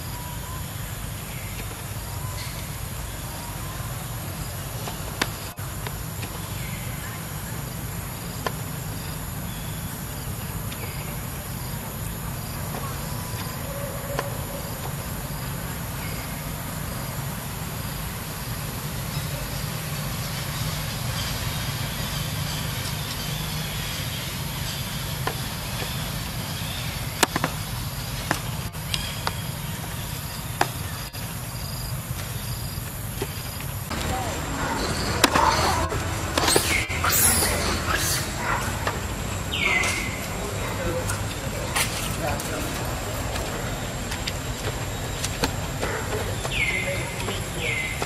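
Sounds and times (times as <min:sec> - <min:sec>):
insects chirping: 0:00.0 - 0:48.0.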